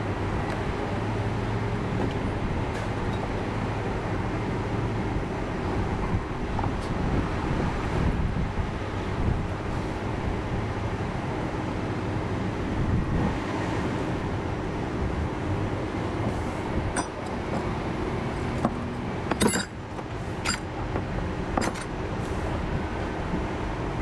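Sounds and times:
metal tools clinking: 0:17.0 - 0:17.3, 0:18.4 - 0:19.8, 0:20.4 - 0:20.7, 0:21.6 - 0:21.9.

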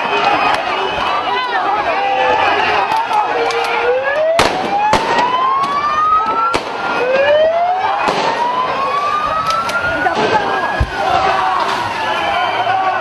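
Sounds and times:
police siren wailing: 0:00.0 - 0:13.0
sharp bangs: 0:08.0 - 0:08.6.

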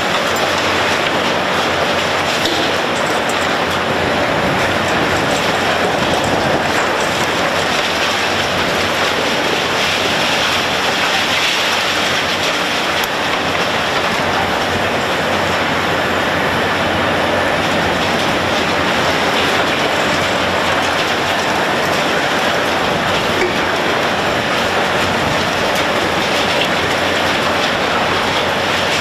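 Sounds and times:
falling rubble: 0:00.0 - 0:15.7, 0:17.2 - 0:29.0
excavator running: 0:00.0 - 0:29.0
concrete crunching: 0:17.7 - 0:29.0.

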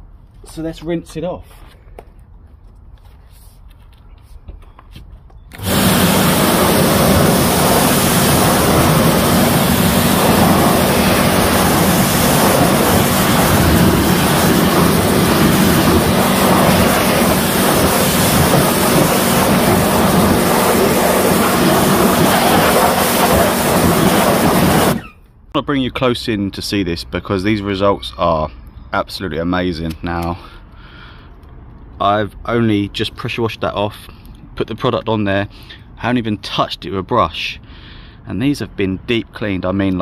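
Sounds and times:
pressure washer spraying: 0:05.6 - 0:25.1
steady hum: 0:05.6 - 0:25.1.

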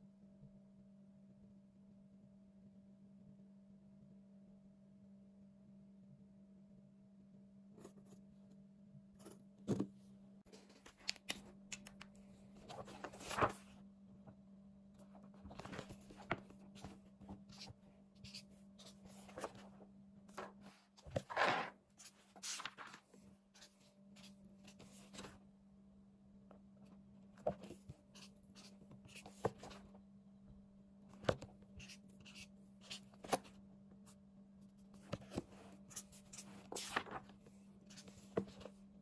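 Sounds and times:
paper pages rustling: 0:12.5 - 0:13.7, 0:15.2 - 0:19.7, 0:20.3 - 0:25.3, 0:35.0 - 0:38.7.

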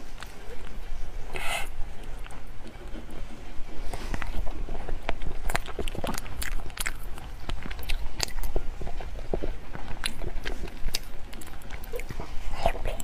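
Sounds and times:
noodles being slurped and chewed: 0:03.9 - 0:13.0.

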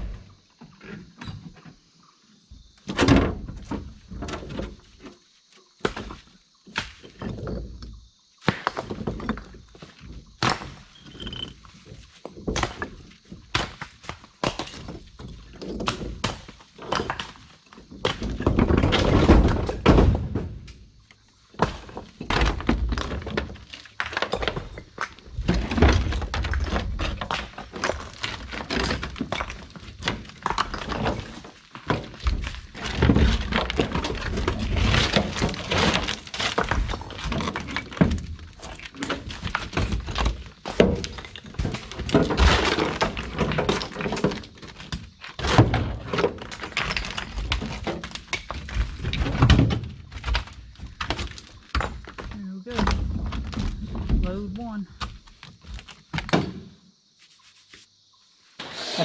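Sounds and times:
concrete chunks clattering: 0:21.5 - 0:56.5.

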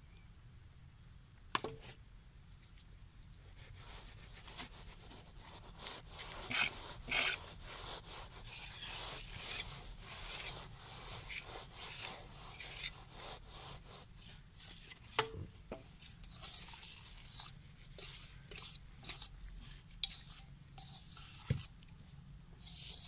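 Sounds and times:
trowel scraping sand: 0:05.4 - 0:15.0.

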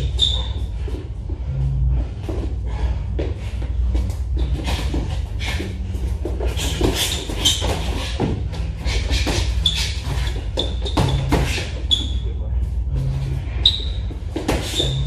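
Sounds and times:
shoes squeaking on floor: 0:00.0 - 0:01.0, 0:06.3 - 0:12.4, 0:13.6 - 0:15.0
low steady hum: 0:00.0 - 0:15.0.

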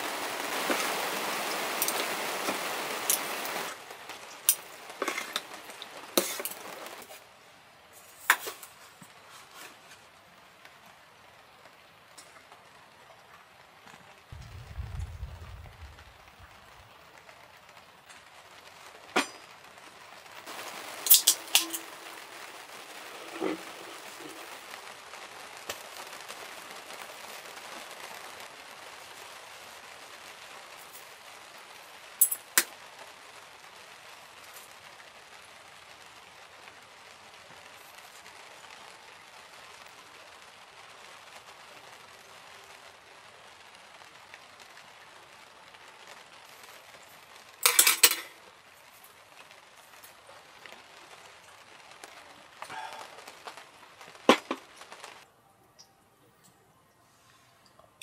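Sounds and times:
rain on a tent: 0:00.0 - 0:58.0
chopsticks clinking on tableware: 0:47.6 - 0:48.2.

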